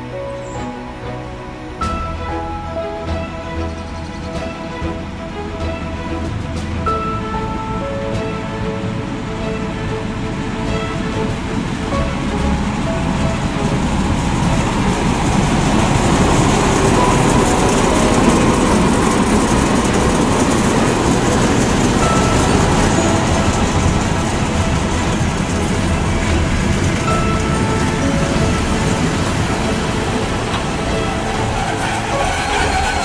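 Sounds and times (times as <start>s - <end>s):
diesel locomotive engine: 0.0s - 33.0s
train coaches rolling by: 0.0s - 33.0s.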